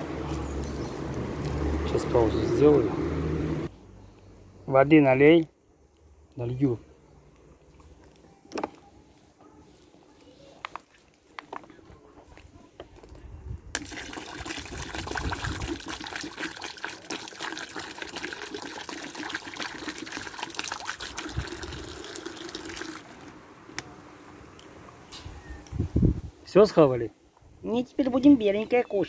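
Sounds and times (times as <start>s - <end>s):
water pouring into plastic bowl: 13.8s - 23.3s.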